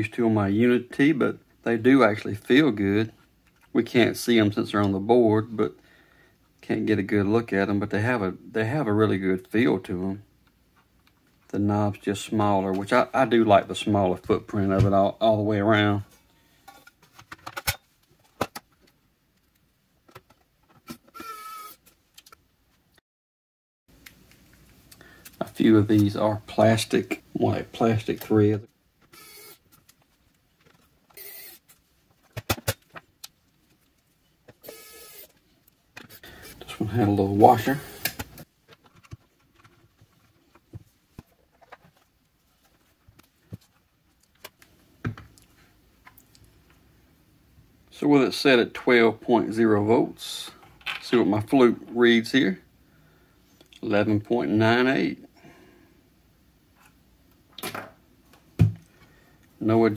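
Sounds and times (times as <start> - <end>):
electric screwdriver whine: 21.2 - 21.8, 29.1 - 29.6, 31.2 - 31.6, 34.6 - 35.3.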